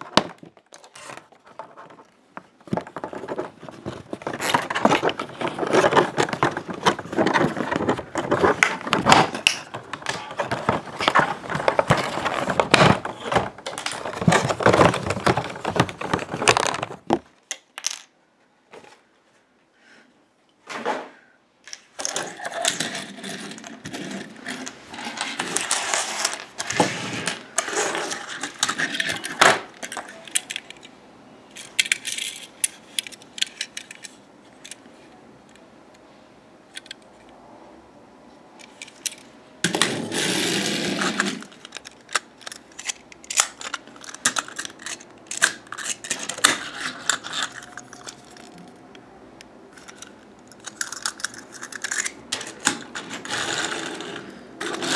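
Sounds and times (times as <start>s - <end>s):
plastic toy pieces clicking: 27.6s - 30.9s, 31.5s - 34.8s, 40.8s - 48.8s, 49.8s - 54.9s.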